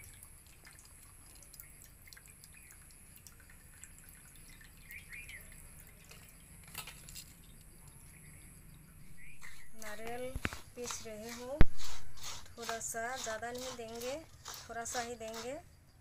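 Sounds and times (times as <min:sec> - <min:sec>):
water dripping and trickling: 0:00.0 - 0:11.6.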